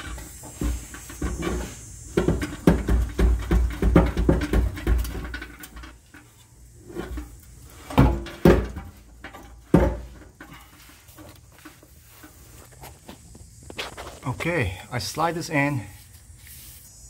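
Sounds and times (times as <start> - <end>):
metal pipe clunks: 0.0 - 6.3, 6.9 - 12.4
metal pipe knocks and scrapes: 0.0 - 12.9.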